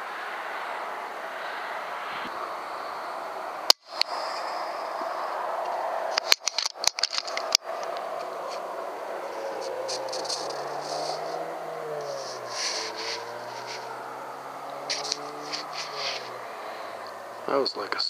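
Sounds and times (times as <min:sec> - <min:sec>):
steady hiss and hum: 0:00.0 - 0:18.0
sharp clicks: 0:06.2 - 0:08.1.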